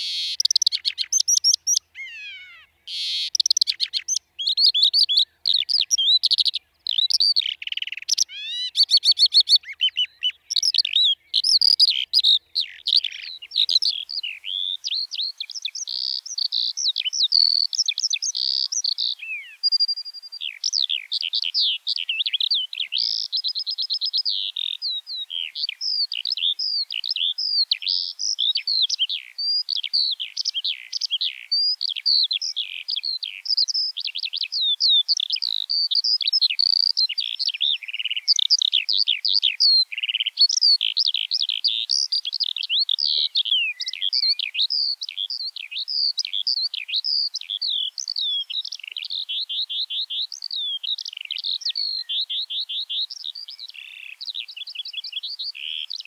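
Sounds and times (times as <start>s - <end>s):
skylark singing: 0.0s - 56.0s.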